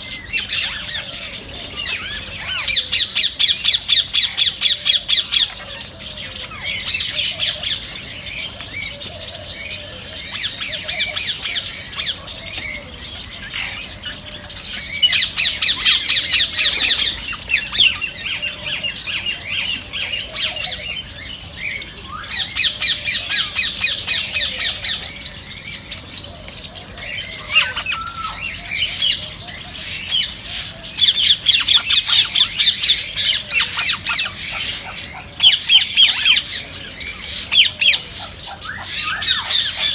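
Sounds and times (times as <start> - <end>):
parakeets squawking: 27.3 - 39.9.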